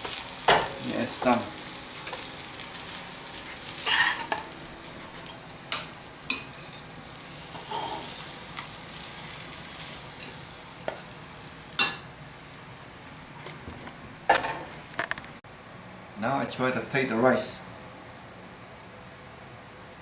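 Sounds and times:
fried rice sizzling in a pan: 0.0 - 13.5
metal spatula scraping a pan: 3.6 - 4.4, 7.5 - 8.2
spatula clinking: 11.8 - 12.1.

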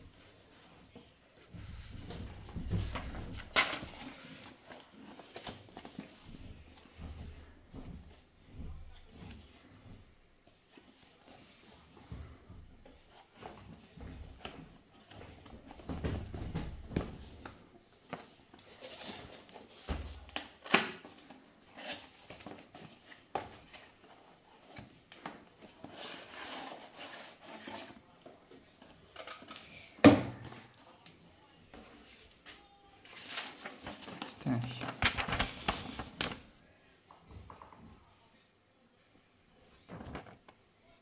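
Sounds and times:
cardboard rustling and scraping: 13.0 - 20.2, 21.1 - 29.2.

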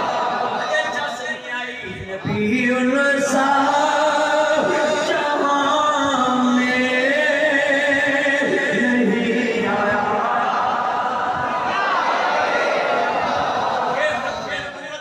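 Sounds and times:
man chanting into microphone: 0.8 - 11.0.

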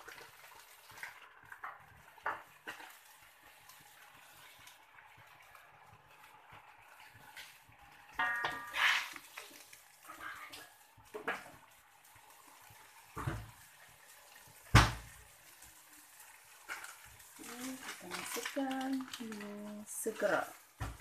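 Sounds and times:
water bubbling in a wok: 0.0 - 21.0
thump: 13.2 - 13.5, 14.7 - 15.0.

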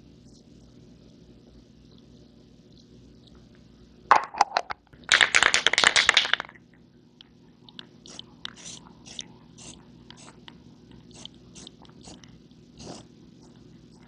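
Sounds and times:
aerosol can ball rattling: 4.1 - 6.5.

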